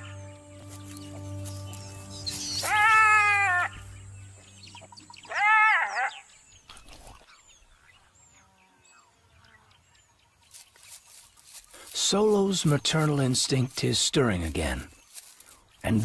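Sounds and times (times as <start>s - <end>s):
jackal wailing calls: 2.5s - 3.8s, 5.2s - 6.3s.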